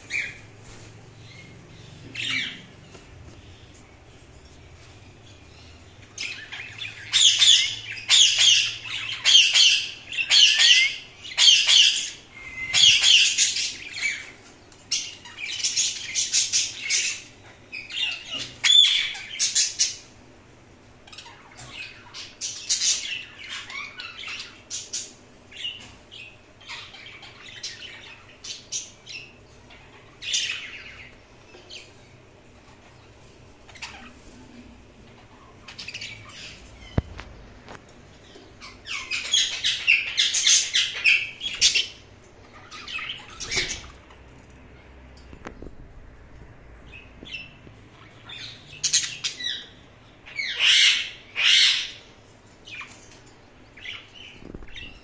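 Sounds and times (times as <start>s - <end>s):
parakeet high-pitched calls: 6.1s - 14.4s, 15.0s - 20.1s, 21.0s - 31.9s, 33.7s - 34.4s, 35.1s - 37.3s, 38.6s - 44.1s, 46.9s - 53.0s.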